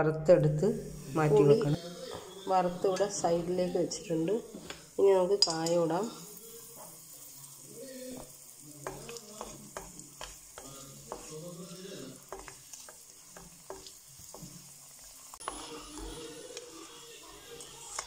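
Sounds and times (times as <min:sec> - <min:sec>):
sizzling in hot oil with pops: 0:04.0 - 0:18.0.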